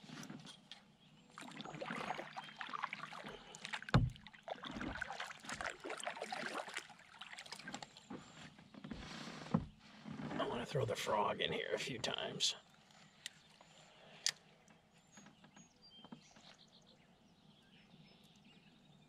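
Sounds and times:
paddle splashing in water: 1.3s - 8.4s
water dripping off paddle: 1.4s - 8.0s.

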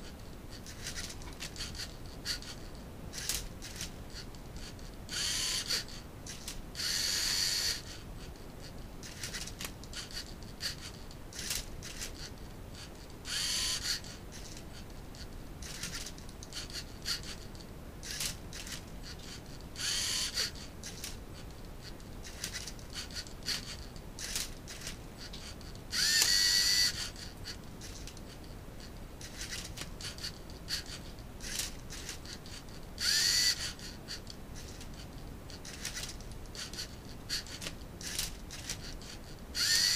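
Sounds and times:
servo motors whirring: 5.1s - 8.3s, 9.0s - 12.3s, 13.3s - 14.6s, 15.6s - 17.4s, 18.0s - 21.5s, 22.2s - 28.2s, 29.2s - 35.0s, 35.6s - 39.9s.

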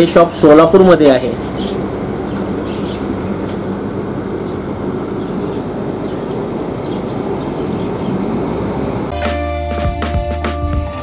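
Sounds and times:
aquarium air pumps humming: 0.0s - 9.2s
sponge filter bubbling: 1.1s - 9.1s.

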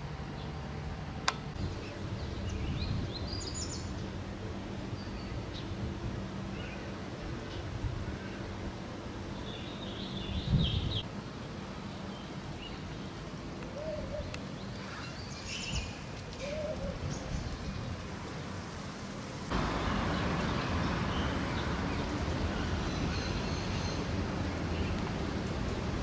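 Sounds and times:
low street hum: 0.0s - 26.0s
road traffic noise: 0.0s - 26.0s
birds chirping: 0.2s - 11.1s, 19.5s - 26.0s.

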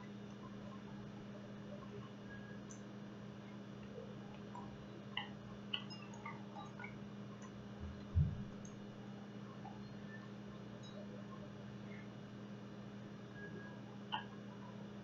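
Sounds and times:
steady low hum: 0.0s - 15.0s
soft low thump: 7.9s - 8.5s.

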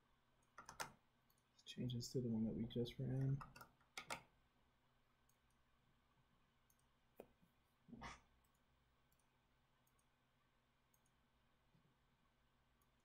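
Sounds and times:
computer mouse clicks: 0.4s - 1.4s, 3.2s - 4.3s, 6.7s - 7.4s, 8.0s - 10.1s, 10.9s - 11.2s.

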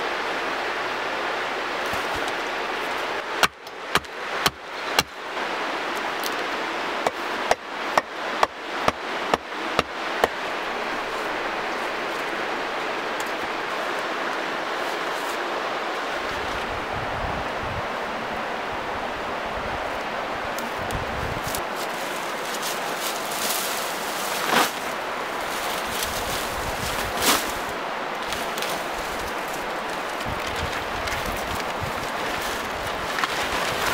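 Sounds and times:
steady rushing noise: 0.0s - 33.9s
dry twigs rustling and crackling: 1.8s - 3.2s, 10.9s - 16.8s, 20.5s - 33.9s
axe hammering wooden stake: 3.4s - 5.1s.

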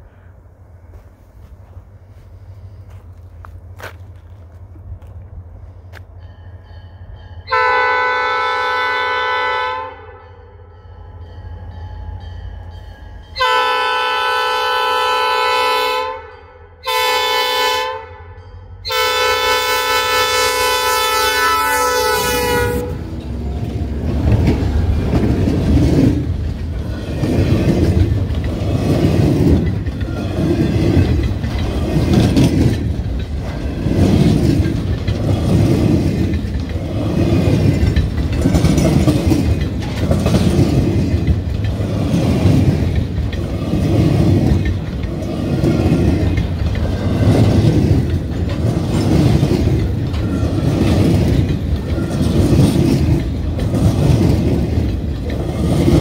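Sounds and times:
train horn blast: 7.5s - 10.4s, 13.4s - 23.2s
train wheels clattering over rail joints: 19.9s - 56.0s.

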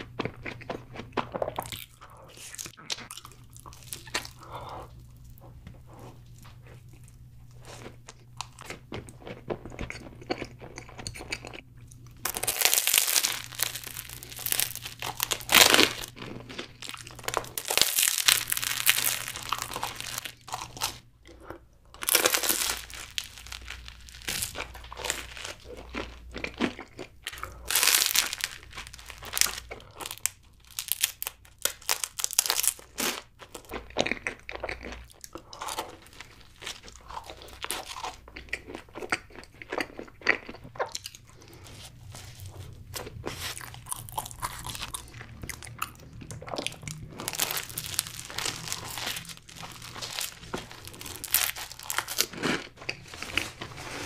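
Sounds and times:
person chewing and crunching pastry: 0.0s - 54.0s.

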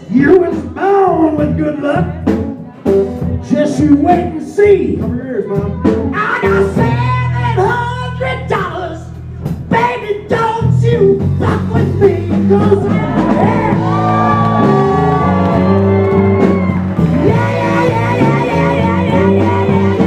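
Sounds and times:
live blues band playing: 0.0s - 20.0s
person shouting and singing: 3.8s - 9.1s, 9.7s - 20.0s.

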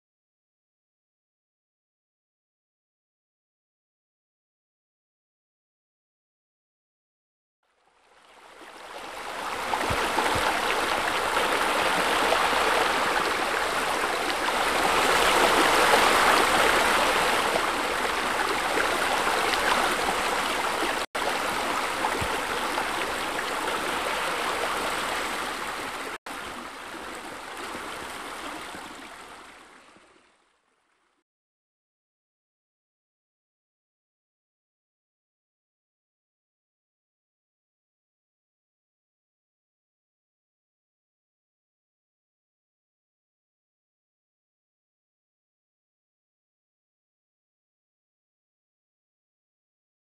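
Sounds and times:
waterfall and stream rushing: 8.2s - 30.4s.

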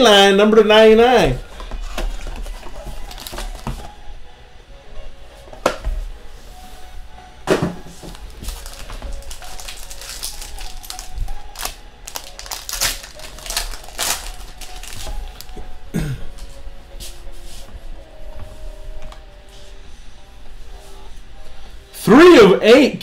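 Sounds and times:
foil pack crinkling: 2.2s - 3.8s, 8.1s - 15.6s.

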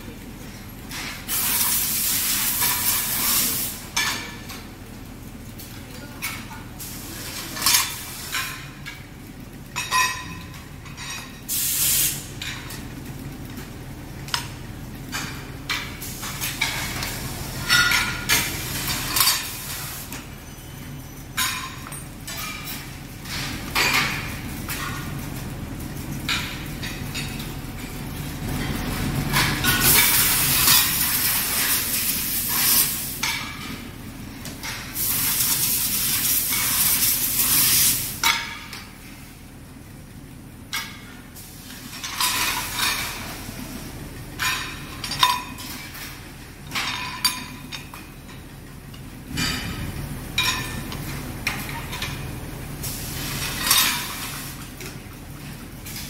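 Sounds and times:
low machine hum: 12.2s - 32.4s.

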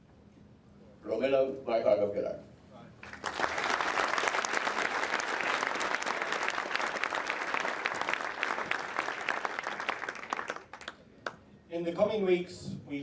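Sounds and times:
audience applauding: 3.0s - 11.4s.

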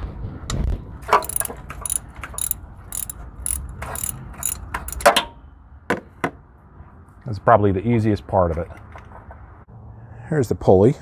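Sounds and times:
socket ratchet clicking: 1.1s - 5.1s.

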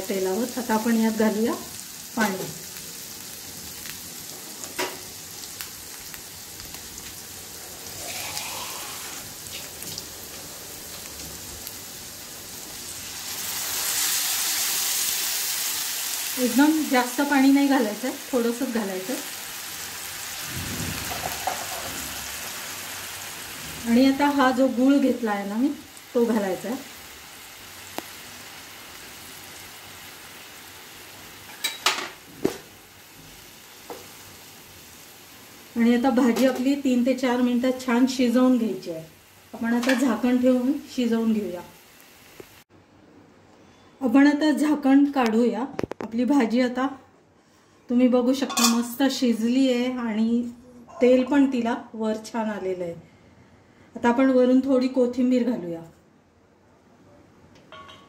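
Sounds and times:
vegetables sizzling in hot oil: 0.0s - 42.7s.

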